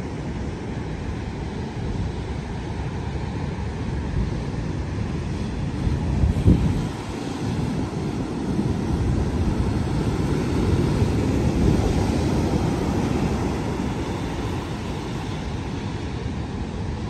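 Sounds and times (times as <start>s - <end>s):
wind buffeting microphone: 0.0s - 17.0s
storm surf breaking: 5.2s - 17.0s.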